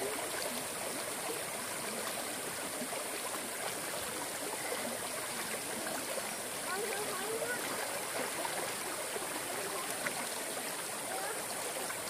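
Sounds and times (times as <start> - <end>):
stream burbling: 0.0 - 12.0.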